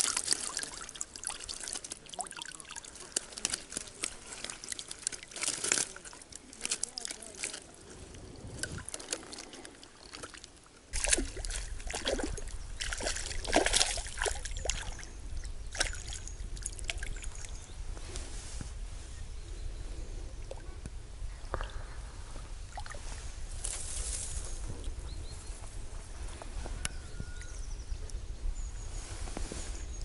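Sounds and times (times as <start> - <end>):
sharp clicks and fish splashes: 0.0 - 7.8, 8.6 - 15.1, 15.7 - 17.6
water splashing at the bank: 0.0 - 17.6, 22.6 - 24.4.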